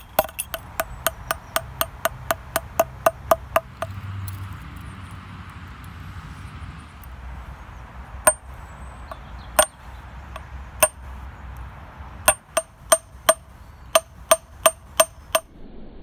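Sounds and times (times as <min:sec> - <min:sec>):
hammer striking metal: 0:00.0 - 0:04.0, 0:08.2 - 0:08.5, 0:09.1 - 0:11.0, 0:12.2 - 0:15.5.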